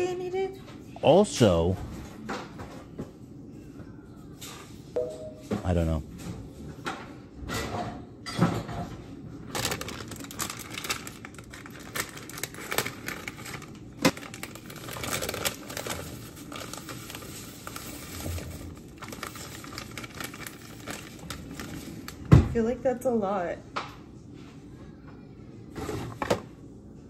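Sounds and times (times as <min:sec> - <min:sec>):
plastic bag rustling: 0:09.4 - 0:22.5.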